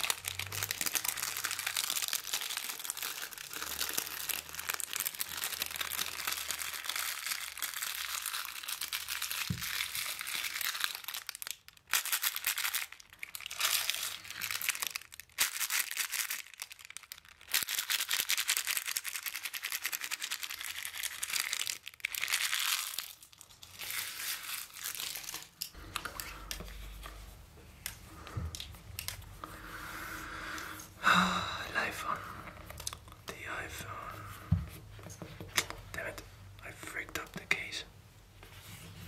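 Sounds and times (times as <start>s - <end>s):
paper packaging crinkling and tearing: 0.0s - 29.4s.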